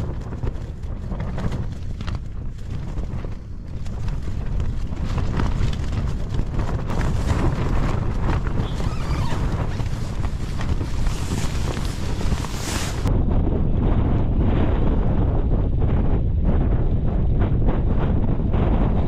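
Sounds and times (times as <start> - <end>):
tent flysheet flapping: 0.0 - 13.2
wind rumble on microphone: 0.0 - 19.0.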